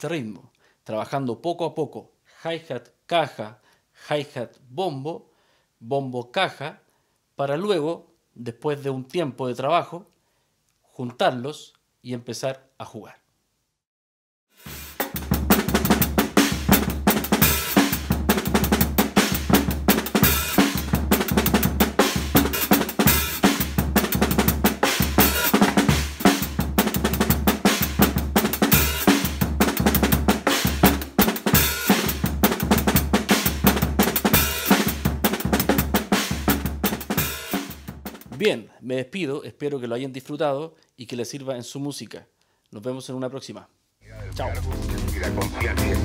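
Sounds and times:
drum kit playing a groove: 0:14.5 - 0:38.5, 0:44.2 - 0:46.0.

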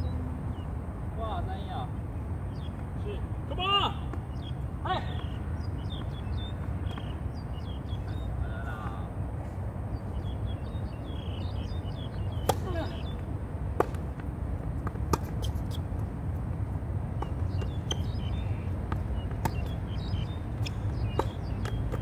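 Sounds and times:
tennis ball bouncing: 0:11.4 - 0:22.0
racket striking tennis ball: 0:12.3 - 0:13.0, 0:13.7 - 0:15.8, 0:18.9 - 0:19.8, 0:20.6 - 0:22.0.

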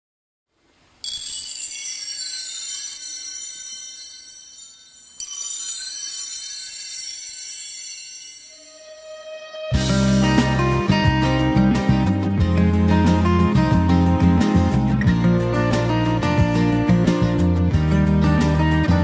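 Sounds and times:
high glittering chimes: 0:01.0 - 0:11.1.

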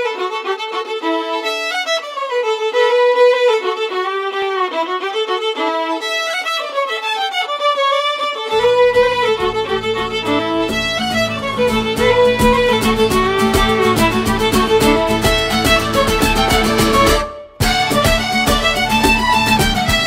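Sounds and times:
solo fiddle dance tune: 0:00.0 - 0:20.0
lower accompaniment: 0:08.2 - 0:20.0.

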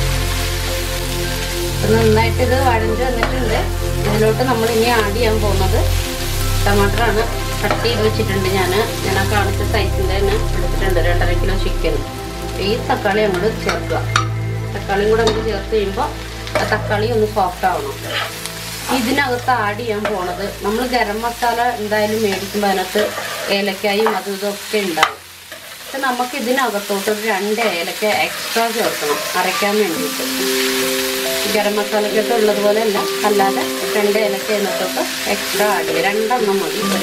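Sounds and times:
vegetables sizzling: 0:00.0 - 0:37.0
metal spatula scraping pan: 0:22.3 - 0:24.2, 0:27.6 - 0:30.0.

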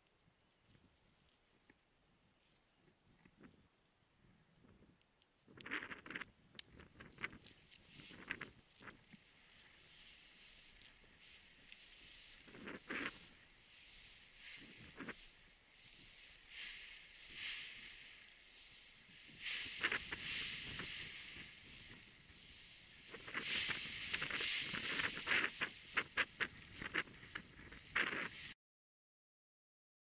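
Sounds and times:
sharp crackles of fabric: 0:06.8 - 0:09.2, 0:10.0 - 0:28.6
nylon fabric and lines rustling: 0:06.8 - 0:28.6.

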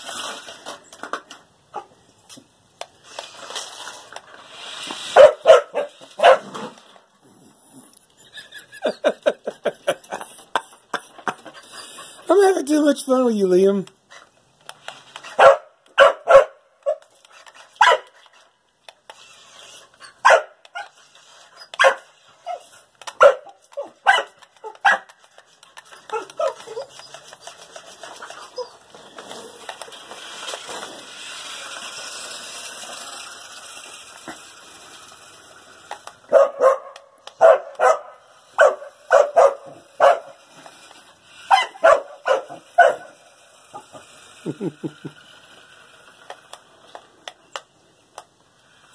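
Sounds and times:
dog barking: 0:05.2 - 0:06.5, 0:15.4 - 0:17.0, 0:20.2 - 0:20.9, 0:21.8 - 0:22.6, 0:23.2 - 0:25.1, 0:36.3 - 0:40.3, 0:41.5 - 0:43.2.

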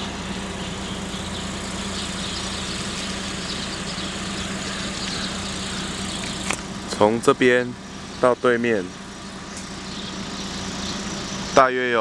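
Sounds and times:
low machine hum: 0:00.0 - 0:12.0
outdoor noise: 0:00.0 - 0:12.0.

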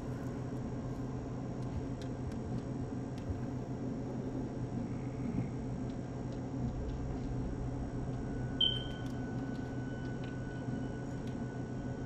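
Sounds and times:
low hum: 0:00.0 - 0:12.0
horror film soundtrack: 0:04.8 - 0:12.0.

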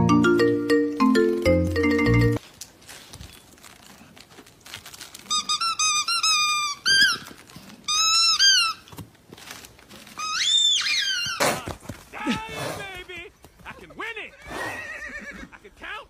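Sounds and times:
squeaky toy squeaks: 0:05.3 - 0:08.9, 0:10.2 - 0:11.4.

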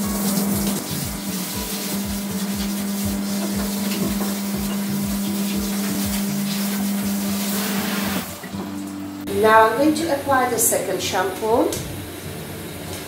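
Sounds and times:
water spraying from shower head: 0:00.0 - 0:08.6.

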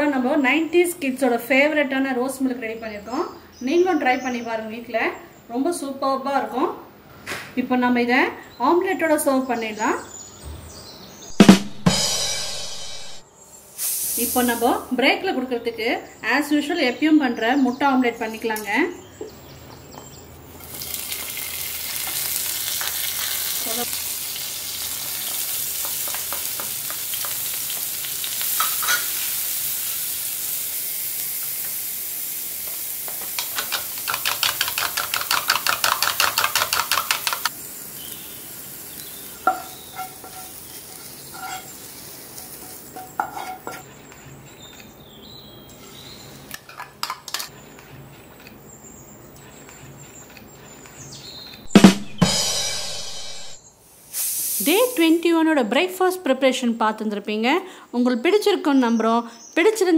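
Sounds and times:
chillies sizzling in hot oil: 0:13.5 - 0:15.2, 0:20.6 - 0:45.0, 0:53.8 - 0:55.4
kitchen utensils clicking: 0:28.6 - 0:29.2, 0:33.1 - 0:37.5, 0:46.5 - 0:47.6
spoon beating eggs in a bowl: 0:33.4 - 0:37.5.

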